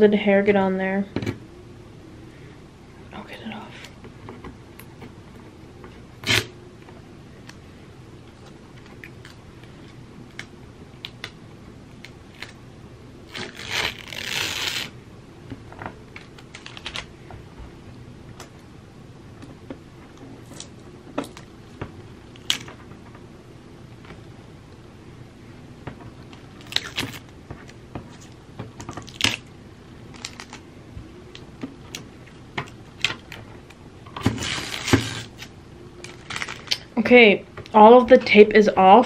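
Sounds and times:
tape tearing off canvas: 0:06.2 - 0:06.5, 0:13.3 - 0:15.0, 0:26.6 - 0:27.2, 0:34.2 - 0:35.5.

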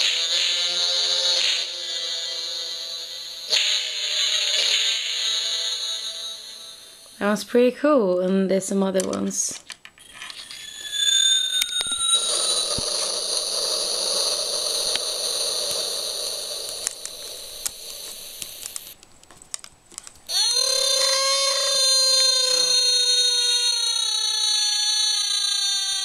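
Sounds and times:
buzzy electronic gliding effect: 0:00.0 - 0:07.3, 0:10.0 - 0:19.0
shrill alarm-like electronic tone: 0:00.0 - 0:07.4, 0:10.0 - 0:19.0, 0:20.3 - 0:26.0.

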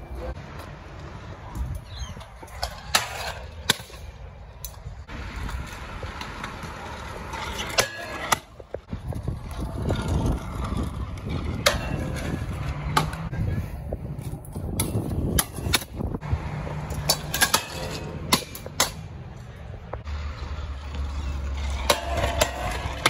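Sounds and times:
scooter wheels rolling on concrete: 0:00.0 - 0:23.0
scooters landing with sharp clacks: 0:01.4 - 0:04.8, 0:05.4 - 0:13.3, 0:14.2 - 0:16.1, 0:16.8 - 0:19.1, 0:20.9 - 0:23.0.

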